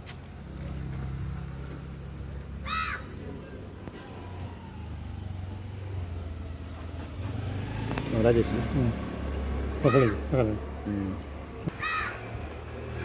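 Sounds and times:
crow cawing: 2.6 - 3.2, 9.8 - 10.3, 11.7 - 12.4.

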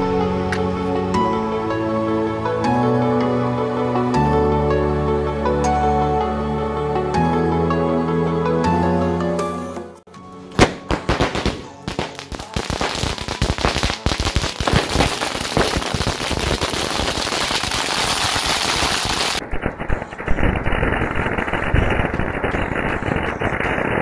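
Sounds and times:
firecrackers crackling rapidly: 10.6 - 24.0.

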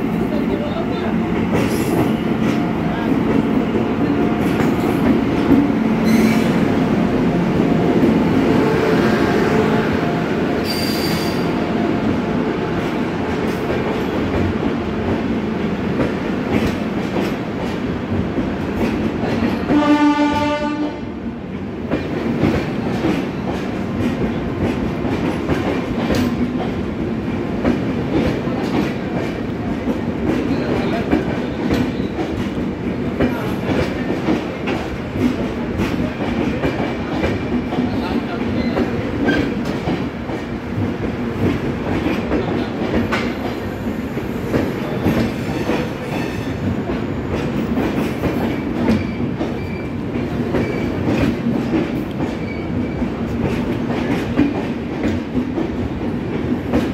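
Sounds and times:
train wheels clattering over rails: 0.0 - 20.8, 21.6 - 56.9
electric locomotive passing: 0.0 - 56.9
train horn blast: 19.7 - 21.1.

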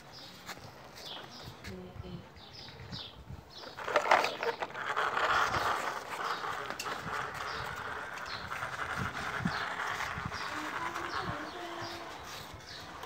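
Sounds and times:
toy truck rattling over wood: 3.6 - 13.0.

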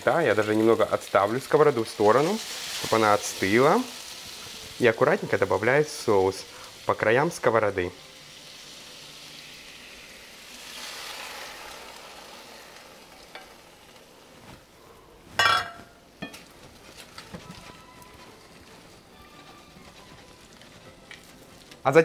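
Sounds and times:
sauce sizzling in a skillet: 0.0 - 14.6.

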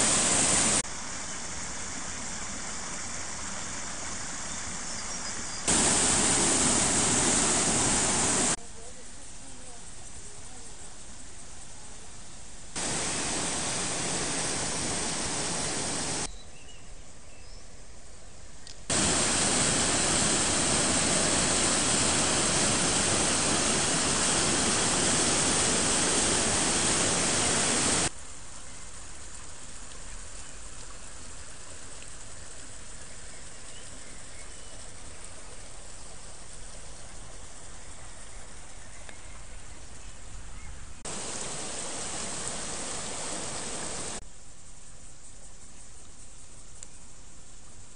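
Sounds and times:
creek water rushing: 0.0 - 4.9, 5.7 - 8.6, 12.8 - 16.3, 18.9 - 28.1, 41.1 - 44.2.

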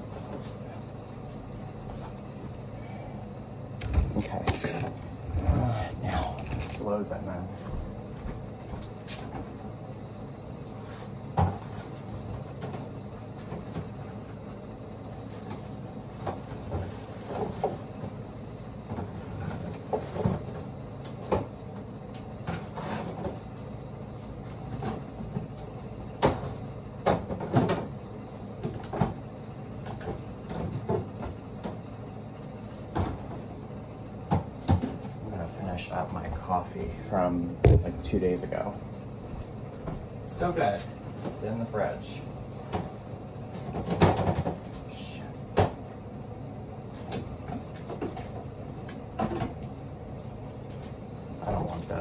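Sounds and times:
steady hum: 0.0 - 52.0
items knocking onto fridge shelves: 24.6 - 28.0, 37.6 - 38.3, 43.6 - 44.7.

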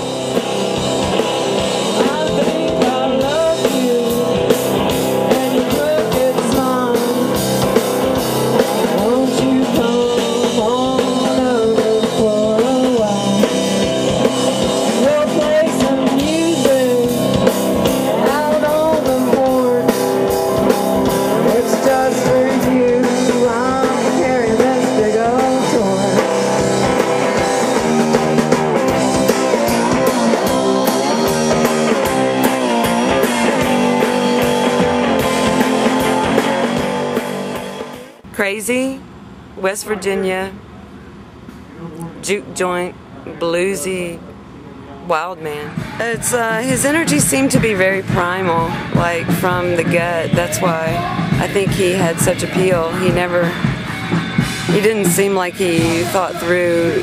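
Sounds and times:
electric guitar: 0.0 - 38.2, 45.7 - 57.0
drum kit: 0.0 - 39.0, 45.1 - 57.0
person singing: 1.8 - 7.4, 8.6 - 13.8, 14.8 - 26.7.

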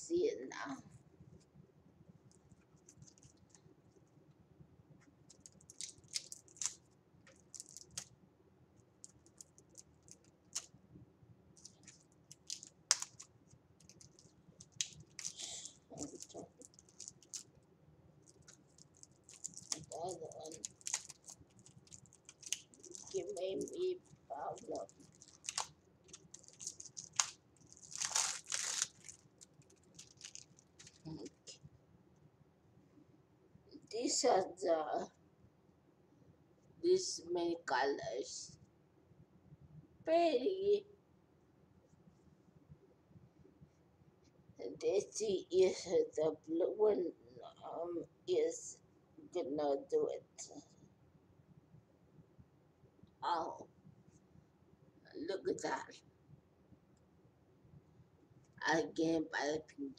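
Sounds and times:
plastic wrapping crinkling: 5.3 - 8.1, 9.0 - 10.7, 11.6 - 17.6, 18.2 - 31.6.

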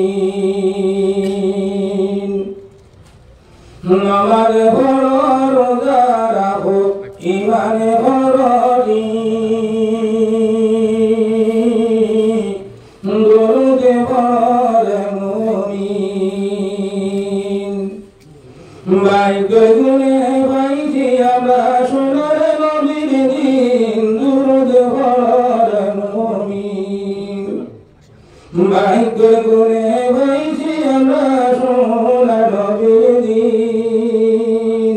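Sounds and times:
man singing unaccompanied: 0.0 - 2.6, 3.8 - 18.1, 18.8 - 27.8, 28.5 - 34.9
short breaths: 18.2 - 18.9, 27.9 - 28.6.

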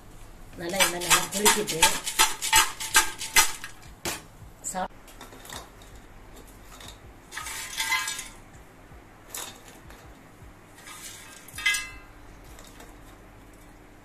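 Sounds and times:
fried snacks rattling in a bowl: 0.7 - 3.8, 6.7 - 8.4.

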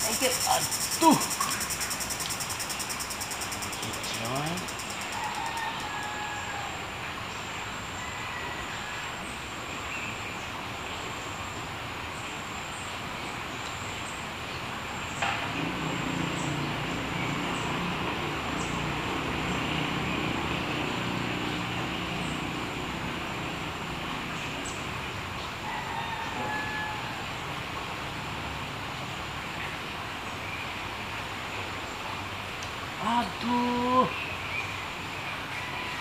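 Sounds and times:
high-pitched insect buzz: 0.0 - 5.8
stream flowing: 0.0 - 36.0.

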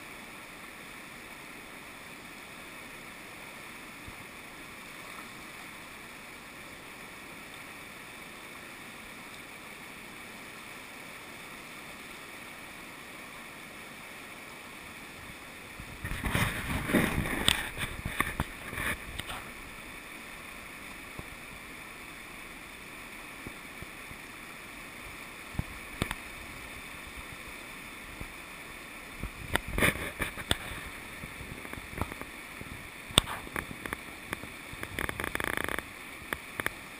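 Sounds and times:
river rapids rushing: 0.0 - 36.9
loud crackling: 33.1 - 35.9.

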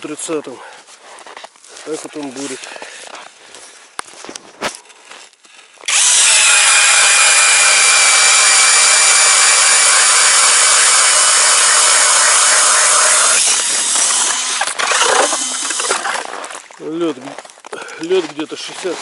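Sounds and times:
auger cutting ice: 5.8 - 16.7
cordless drill whining: 5.9 - 16.0.

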